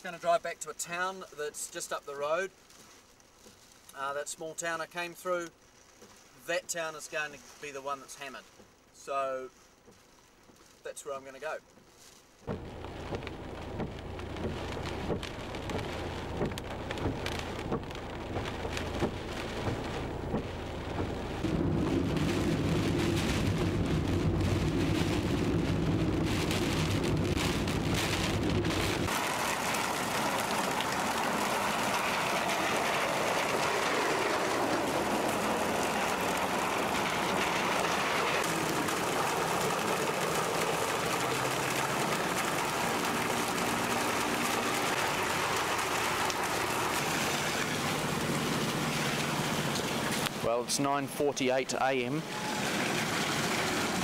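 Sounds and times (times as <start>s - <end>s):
heavy rain hissing: 12.5s - 54.0s
vehicle engine droning: 12.5s - 54.0s.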